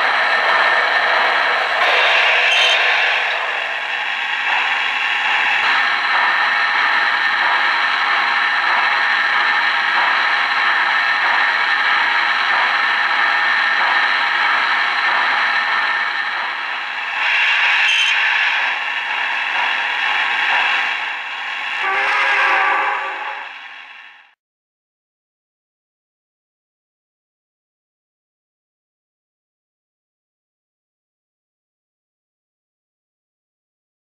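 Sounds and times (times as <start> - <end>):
model train wheels and motor clatter: 0.0 - 24.3.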